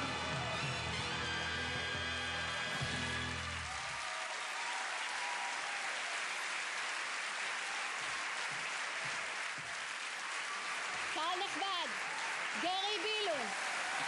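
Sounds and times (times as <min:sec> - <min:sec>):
stage music: 0:00.0 - 0:04.0
large audience applauding: 0:00.0 - 0:14.0.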